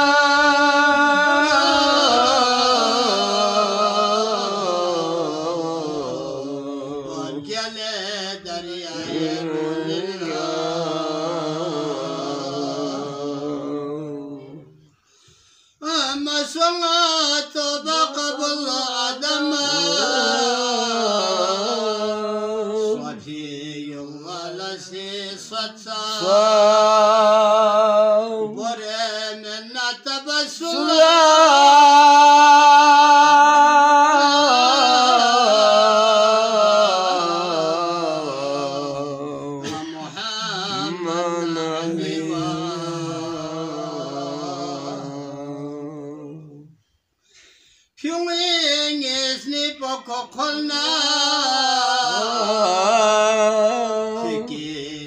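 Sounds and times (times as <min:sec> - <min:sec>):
man chanting unaccompanied: 0:00.0 - 0:14.8, 0:15.8 - 0:46.7, 0:48.0 - 0:55.0
breaths between phrases: 0:14.7 - 0:15.8, 0:46.7 - 0:48.0.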